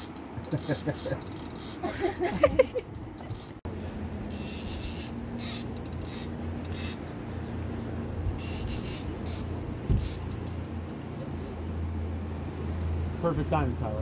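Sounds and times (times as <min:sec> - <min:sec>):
boat engine idling: 0:00.0 - 0:11.9
short hissy bursts: 0:04.3 - 0:07.0, 0:08.4 - 0:10.5.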